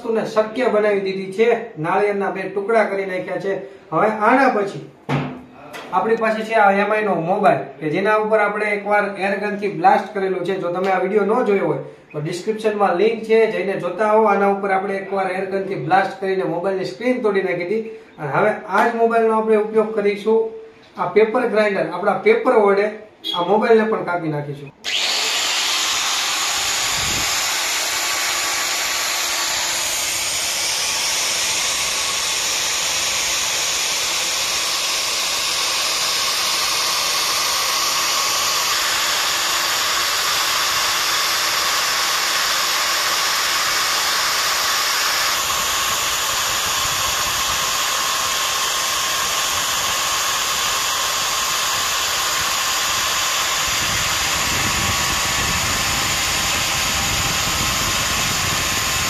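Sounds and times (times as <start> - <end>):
electric grinder grinding: 24.8 - 59.0.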